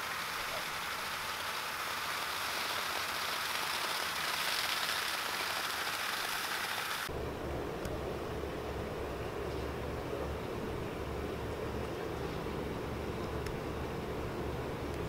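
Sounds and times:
water spray hissing: 0:00.0 - 0:07.1.

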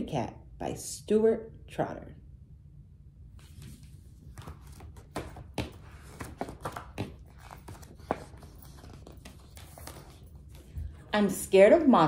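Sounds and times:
book pages turning: 0:03.4 - 0:11.0.

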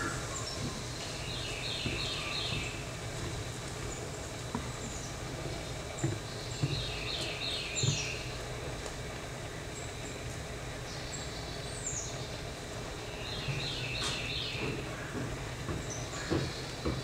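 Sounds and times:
small bird singing: 0:00.0 - 0:02.9, 0:06.3 - 0:08.4, 0:10.9 - 0:14.9.

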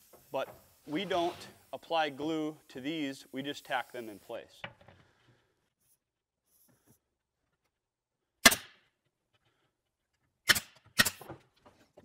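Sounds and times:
brad nailer firing: 0:08.4 - 0:08.8, 0:10.4 - 0:11.4.

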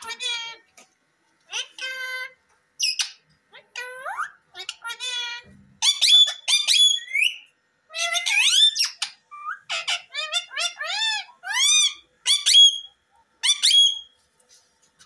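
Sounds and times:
parakeets calling: 0:00.0 - 0:00.6, 0:01.5 - 0:14.1.

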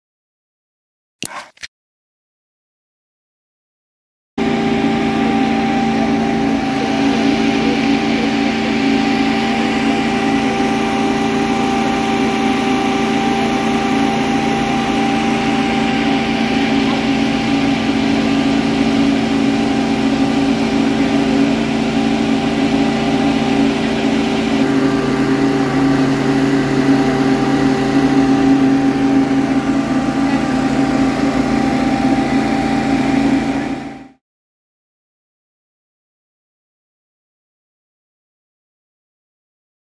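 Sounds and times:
fire engine idling: 0:04.4 - 0:34.2.

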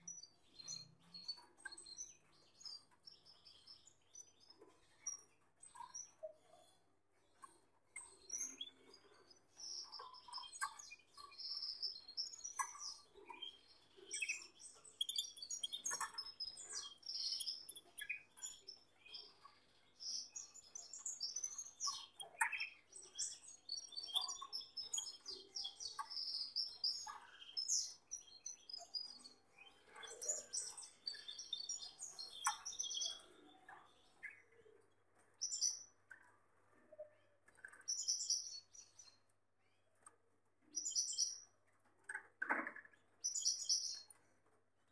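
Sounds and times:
canaries chirping and singing: 0:00.1 - 0:06.6, 0:07.4 - 0:34.7.

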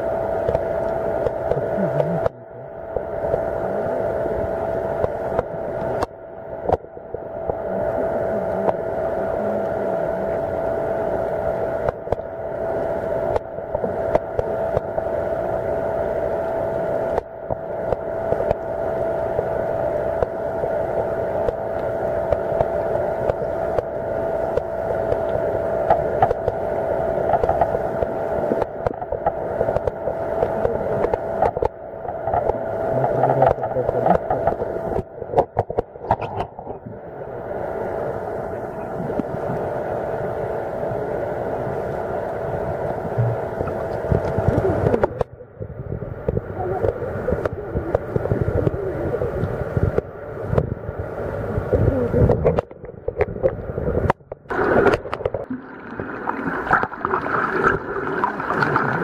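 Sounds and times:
underwater droning hum: 0:00.0 - 0:59.0
fine crackling and clicks: 0:00.4 - 0:03.5, 0:11.2 - 0:12.3, 0:13.3 - 0:15.1, 0:17.0 - 0:36.8, 0:41.9 - 0:45.4, 0:51.7 - 0:59.0.

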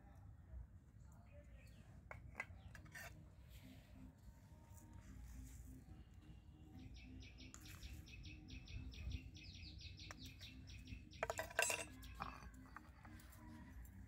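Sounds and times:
stone clattering on stone: 0:11.2 - 0:12.6.

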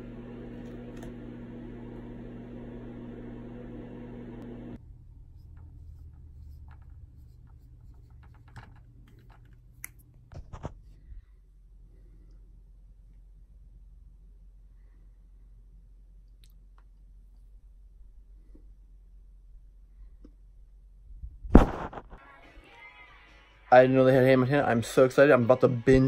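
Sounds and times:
low hum with held tone: 0:00.0 - 0:21.5
marker scratching on whiteboard: 0:05.4 - 0:08.5.

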